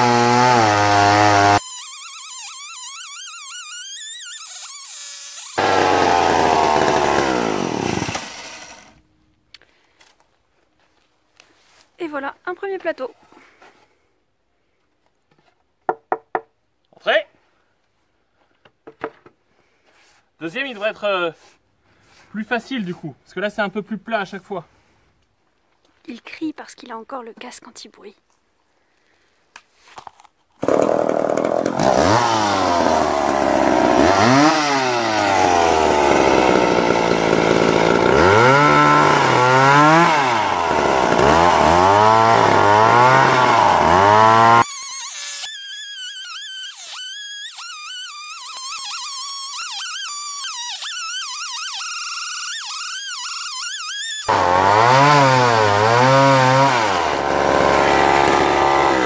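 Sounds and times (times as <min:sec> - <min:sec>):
chainsaw ripping through log: 0:00.0 - 0:09.0, 0:30.0 - 0:59.0.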